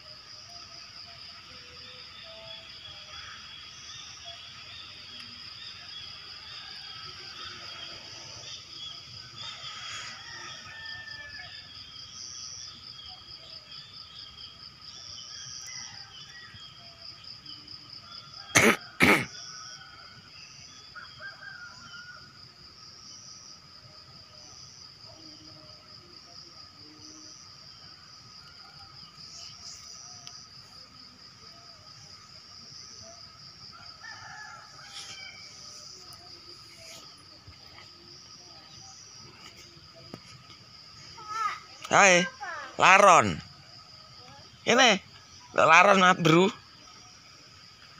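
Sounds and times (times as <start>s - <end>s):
high insect trill: 0.0s - 47.9s
person coughing: 18.6s - 19.3s.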